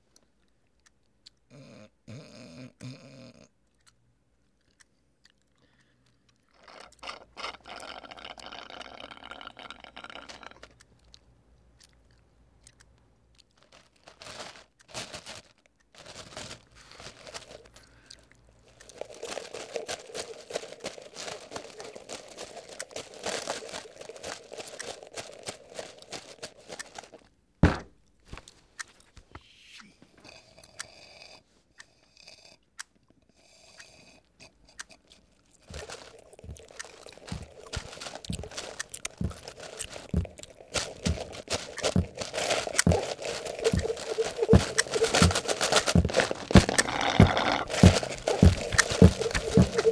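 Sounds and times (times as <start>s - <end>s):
straw stirring ice in plastic cup: 13.6s - 18.0s, 18.6s - 27.2s, 35.6s - 49.9s
loud sharp thump: 27.6s - 28.0s.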